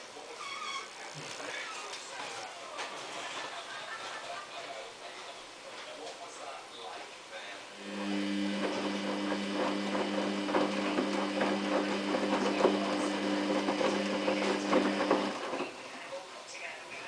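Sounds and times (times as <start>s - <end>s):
washing machine motor hum: 7.7s - 16.2s
wet laundry tumbling in drum: 7.8s - 15.9s.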